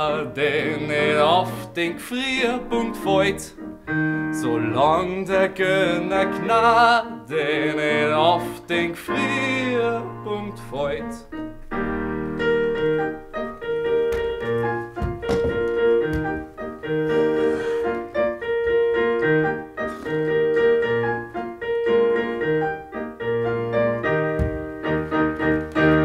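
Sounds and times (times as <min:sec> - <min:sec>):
live piano playing: 0:00.0 - 0:26.0
low thump: 0:15.0 - 0:16.4.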